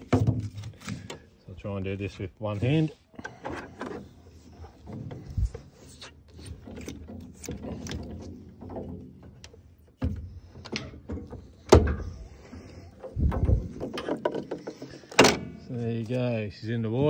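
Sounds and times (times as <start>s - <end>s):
motor mount clunks: 6.8s - 15.7s.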